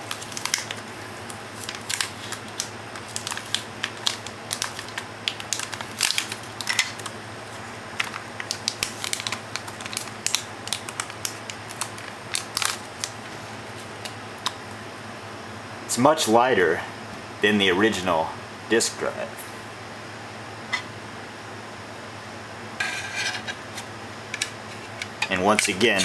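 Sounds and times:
plastic bag crinkling: 0:00.0 - 0:07.1, 0:08.0 - 0:13.2.

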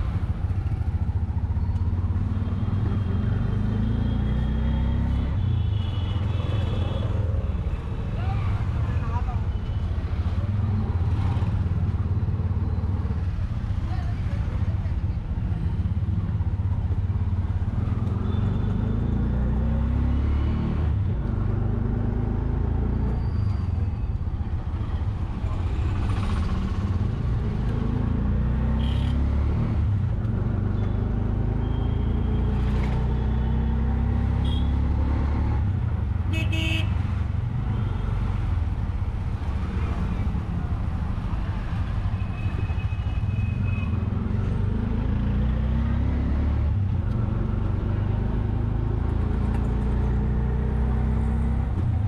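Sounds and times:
auto rickshaw engine droning: 0:21.2 - 0:29.2
vehicle horns tooting: 0:34.4 - 0:34.8, 0:36.3 - 0:37.0.

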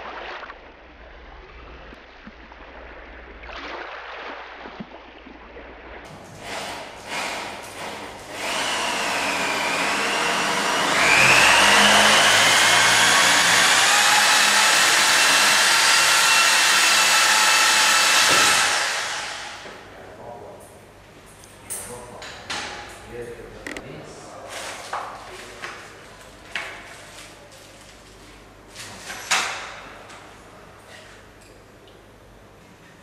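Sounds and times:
motor whining: 0:08.4 - 0:19.6.

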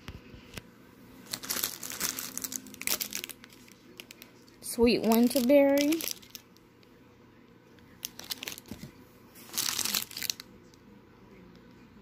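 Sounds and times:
plastic bags crinkling: 0:01.2 - 0:06.6, 0:08.0 - 0:10.5.

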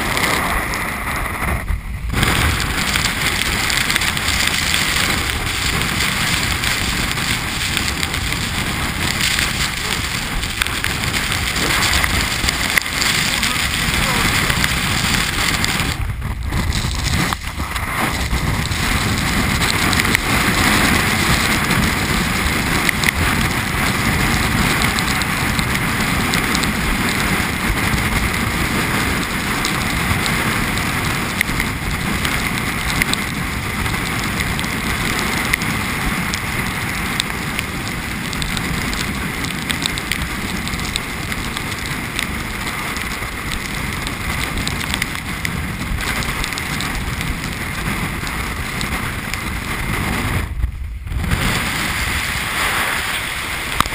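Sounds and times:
wind blasting over microphone: 0:00.0 - 0:53.9
small ticks: 0:29.6 - 0:36.5, 0:37.2 - 0:49.0.

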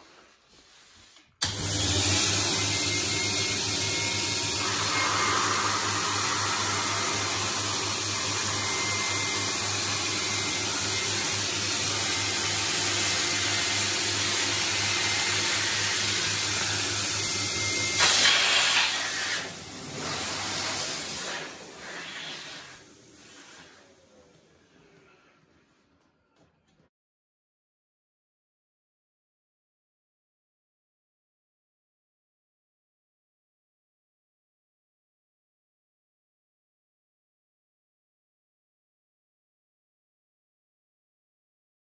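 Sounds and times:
electric air pump blowing: 0:00.1 - 0:25.1.

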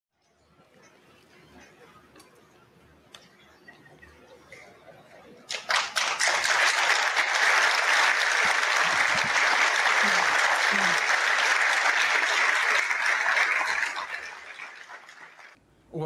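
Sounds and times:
large audience applauding: 0:05.5 - 0:15.6.

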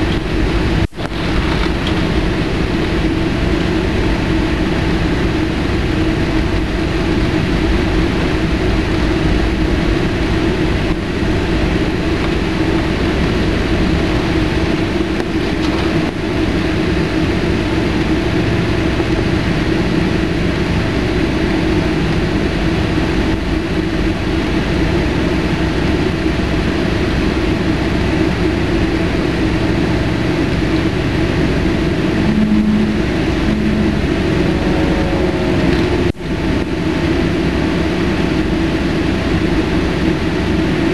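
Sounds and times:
jet engines humming: 0:00.0 - 0:40.9
brief low tones: 0:31.4 - 0:36.7.

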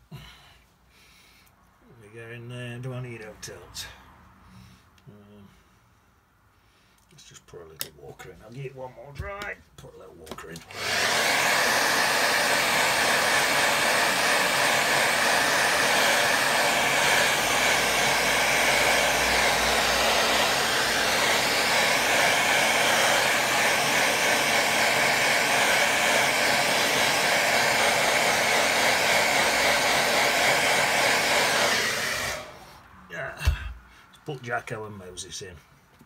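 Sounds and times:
hair dryer blowing: 0:10.6 - 0:32.8.

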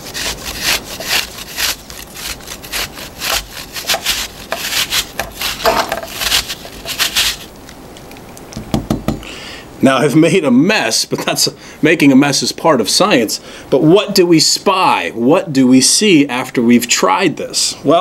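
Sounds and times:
apple grating on metal grater: 0:00.0 - 0:07.5.

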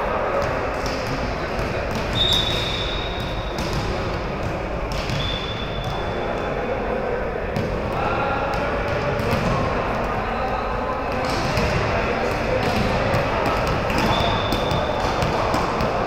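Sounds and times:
chatter in indoor sports hall: 0:00.0 - 0:16.0
volleyball bouncing on court floor: 0:00.3 - 0:06.4, 0:07.5 - 0:10.2, 0:11.1 - 0:16.0
referee's whistle blast: 0:02.1 - 0:03.6.

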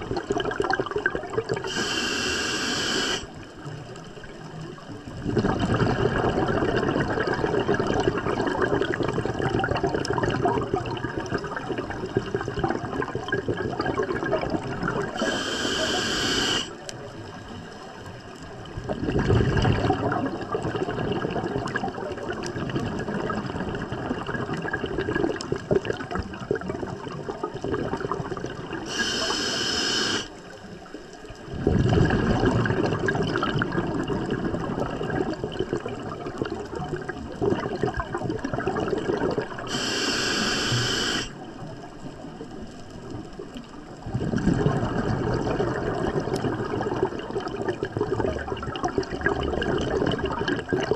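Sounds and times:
exhaled bubbles underwater: 0:00.0 - 0:50.9
regulator inhalation hiss: 0:01.6 - 0:03.3, 0:15.2 - 0:16.8, 0:28.9 - 0:30.3, 0:39.7 - 0:41.4.

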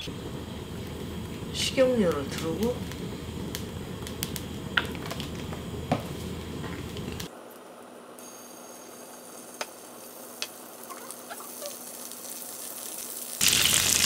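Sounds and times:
oil sizzling in frying pan: 0:00.0 - 0:07.3, 0:09.0 - 0:14.0
tofu frying loudly: 0:10.2 - 0:14.0.

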